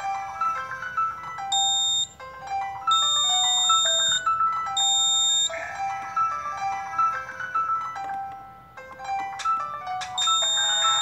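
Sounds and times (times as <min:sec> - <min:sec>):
background music: 0:00.0 - 0:11.0
shrill buzzer beep: 0:01.5 - 0:02.2, 0:02.9 - 0:05.6, 0:10.2 - 0:11.0.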